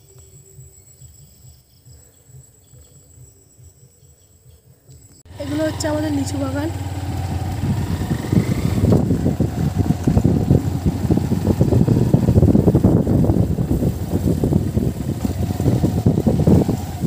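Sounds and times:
wind buffeting the microphone: 0:05.4 - 0:17.0.

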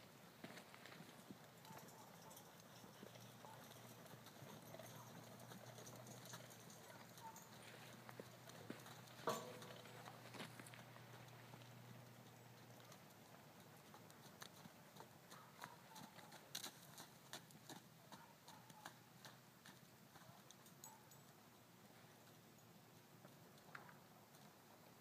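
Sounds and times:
hooves on sand: 0:00.4 - 0:13.0.

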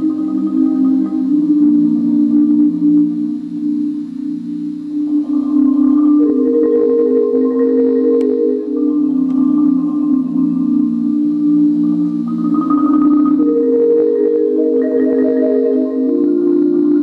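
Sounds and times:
marimbas playing rolled chords: 0:00.0 - 0:17.0.

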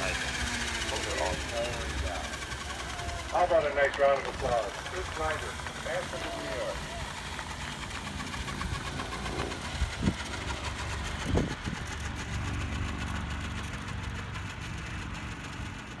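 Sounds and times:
model helicopter rotor whirring: 0:00.0 - 0:16.0.

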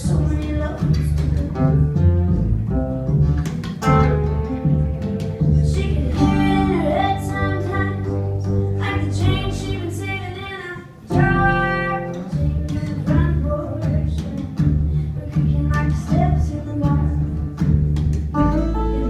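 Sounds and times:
woman singing: 0:00.0 - 0:01.7, 0:05.6 - 0:08.2, 0:08.8 - 0:17.4
guitar: 0:00.0 - 0:19.0
upright double bass: 0:00.0 - 0:19.0.

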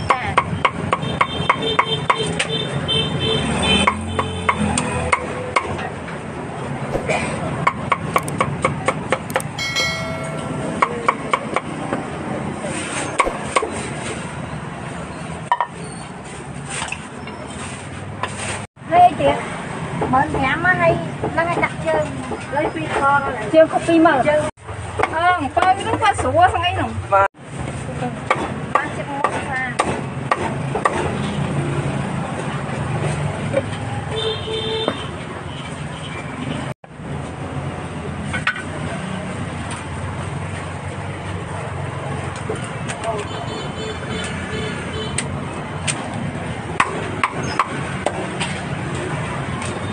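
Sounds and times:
cleaver chopping meat: 0:06.9 - 0:07.2
brief metallic ring: 0:09.3 - 0:11.2.

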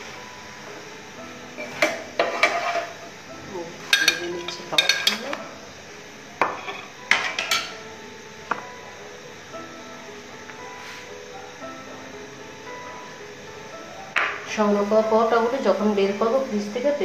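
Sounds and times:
metal utensils clinking on pan: 0:01.6 - 0:02.9, 0:03.9 - 0:05.4, 0:06.6 - 0:07.8.

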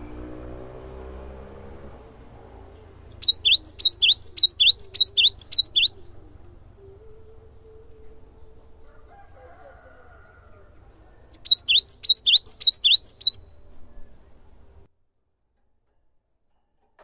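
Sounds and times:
bird singing sharp whistled notes: 0:03.0 - 0:08.6, 0:11.2 - 0:14.7.

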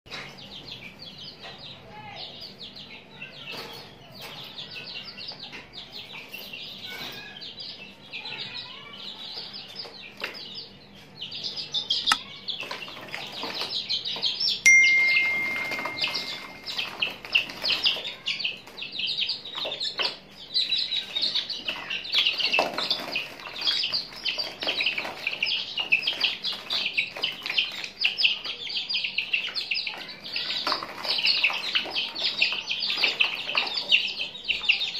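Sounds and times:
chicks peeping: 0:00.1 - 0:34.9
wings flapping and splashing water: 0:22.2 - 0:27.8.

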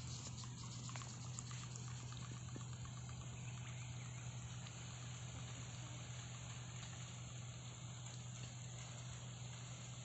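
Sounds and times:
small ticks: 0:00.0 - 0:04.9
water trickling and splashing: 0:00.0 - 0:07.1
steady low motor hum: 0:00.0 - 0:10.0.

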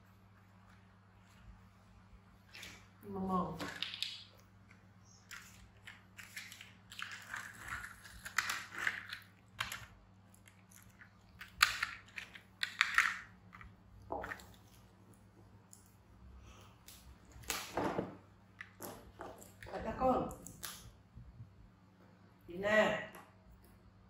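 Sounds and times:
monkey gnawing on plastic: 0:03.8 - 0:12.8.

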